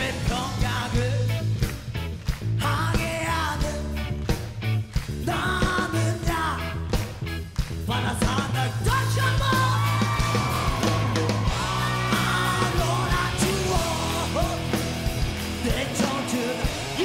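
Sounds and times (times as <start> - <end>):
man singing: 0.0 - 1.6, 2.6 - 4.1, 5.1 - 6.9, 7.8 - 10.2, 11.4 - 17.0
punk rock band playing: 0.0 - 17.0.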